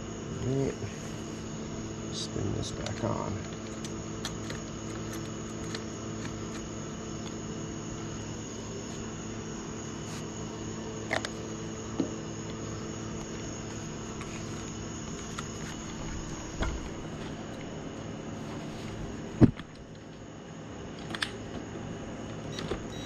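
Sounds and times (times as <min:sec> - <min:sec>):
background hum with whine: 0:00.0 - 0:23.0.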